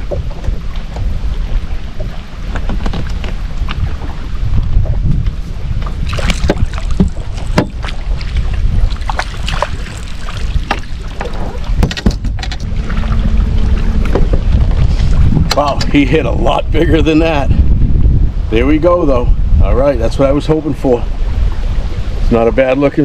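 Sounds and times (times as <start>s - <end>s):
knocks and water splashes: 0.0s - 16.6s
wind on microphone: 0.0s - 23.0s.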